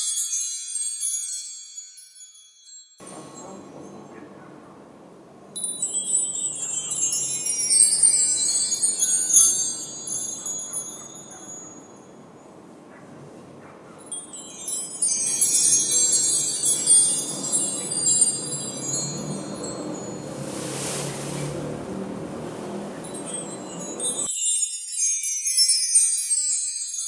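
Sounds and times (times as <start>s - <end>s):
wind chime tinkling: 0.0s - 27.0s
steady low rush: 3.0s - 24.3s.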